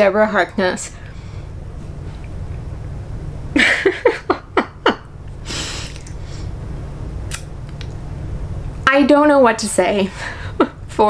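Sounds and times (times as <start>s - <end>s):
low room hum: 0.0s - 11.0s
woman laughing: 3.6s - 5.8s, 10.3s - 11.0s.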